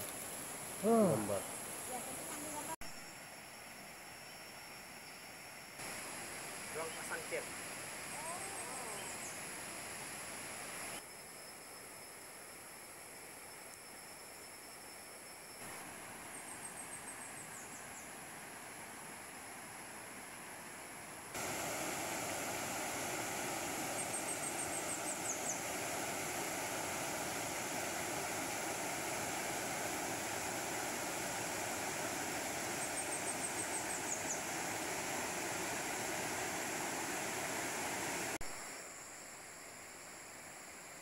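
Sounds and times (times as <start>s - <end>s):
stream water rushing: 5.8s - 11.0s, 21.2s - 38.7s
high falling chirps: 21.4s - 38.4s.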